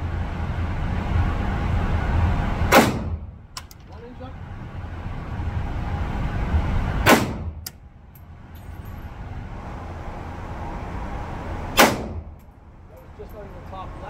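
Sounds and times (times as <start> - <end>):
steady low rumble: 0.0 - 14.0
handgun shots with echo: 2.7 - 3.2, 7.1 - 7.8, 11.8 - 12.3.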